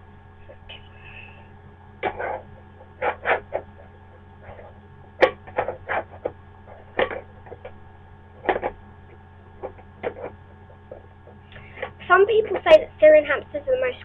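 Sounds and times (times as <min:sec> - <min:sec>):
low electrical hum: 0:00.0 - 0:14.0
plastic lid scraping and tapping: 0:02.0 - 0:03.8, 0:04.5 - 0:07.8, 0:08.4 - 0:12.7.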